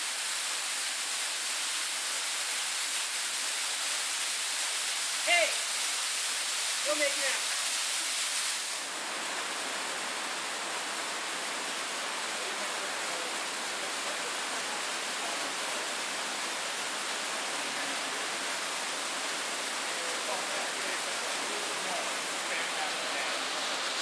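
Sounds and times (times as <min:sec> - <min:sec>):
waterfall rushing and splashing: 0:00.0 - 0:24.0.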